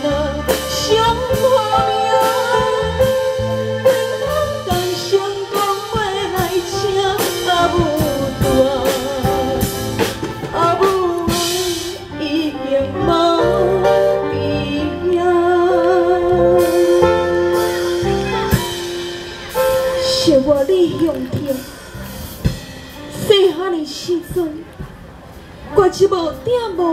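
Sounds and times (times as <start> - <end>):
woman singing with vibrato: 0.0 - 17.8
instrumental backing music: 0.0 - 26.9.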